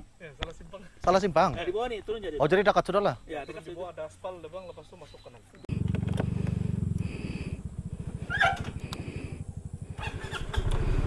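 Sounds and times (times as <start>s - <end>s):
scooter engine idling: 5.7s - 11.0s.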